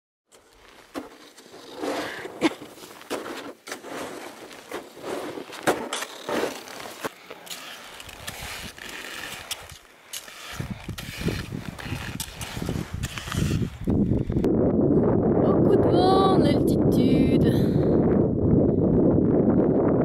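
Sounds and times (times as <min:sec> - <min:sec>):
footsteps crunching in snow: 0:00.4 - 0:13.9
trekking pole clicks: 0:05.6 - 0:14.0.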